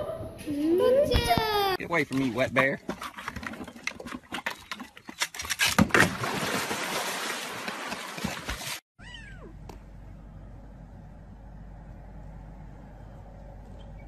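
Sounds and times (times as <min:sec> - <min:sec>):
water splashing: 0:01.9 - 0:08.8.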